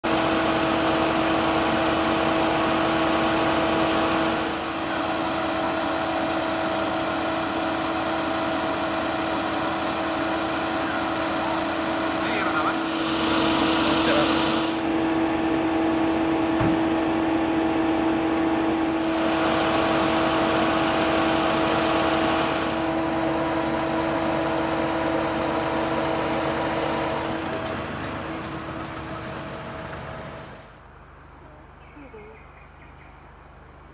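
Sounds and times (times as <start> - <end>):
vehicle engine idling: 0.0 - 33.9.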